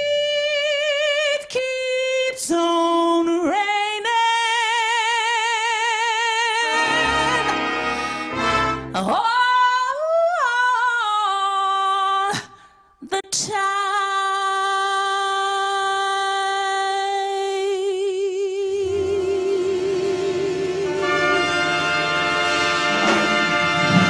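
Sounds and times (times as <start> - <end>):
woman singing jazz: 0.0 - 7.8, 8.9 - 22.0
big band playing: 6.6 - 9.1, 18.9 - 24.0.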